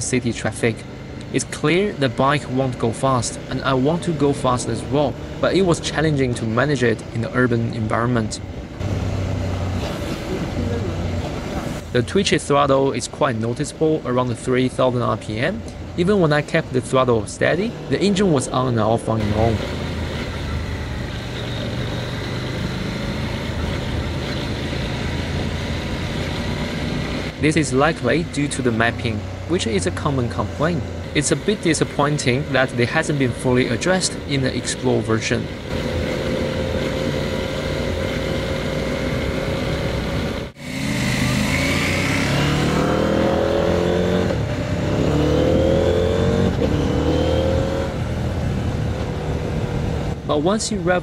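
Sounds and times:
road and wind noise: 0:00.0 - 0:51.0
motorcycle engine accelerating: 0:00.6 - 0:11.8, 0:13.4 - 0:50.3
motorcycle engine running: 0:17.5 - 0:34.8.

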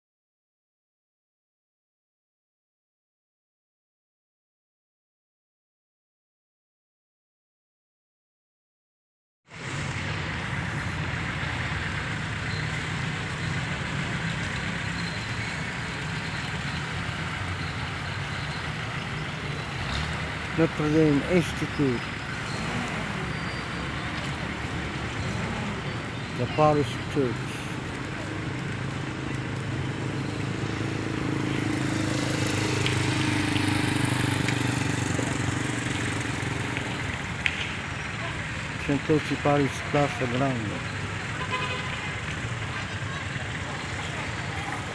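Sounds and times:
motor vehicle engine running: 0:09.5 - 0:44.9
road noise: 0:09.5 - 0:44.9
street noise: 0:09.5 - 0:44.9.

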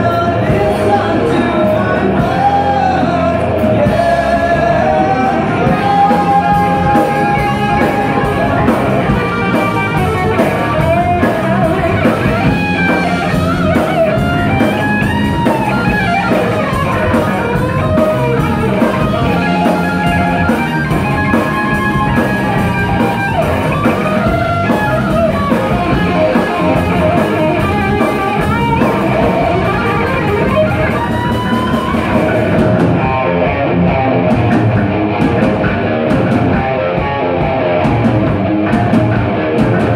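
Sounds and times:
bass guitar: 0:00.0 - 0:39.9
drum kit: 0:00.0 - 0:39.9
electric guitar lead bending notes: 0:00.0 - 0:39.9.

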